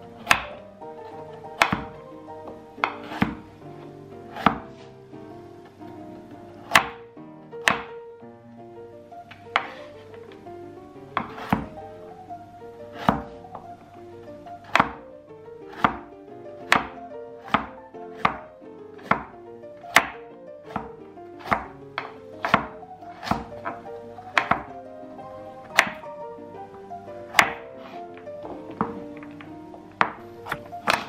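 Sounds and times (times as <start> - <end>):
background music: 0.0 - 31.0
knife slicing carrot on wooden board: 0.2 - 0.6, 1.6 - 1.9, 2.8 - 3.4, 4.3 - 4.6, 6.6 - 7.0, 7.6 - 7.9, 9.5 - 10.0, 11.2 - 11.7, 12.9 - 13.3, 14.6 - 15.0, 15.7 - 16.0, 16.7 - 18.4, 19.0 - 19.3, 19.9 - 23.8, 24.4 - 24.7, 25.7 - 26.1, 27.3 - 28.0, 30.0 - 31.0.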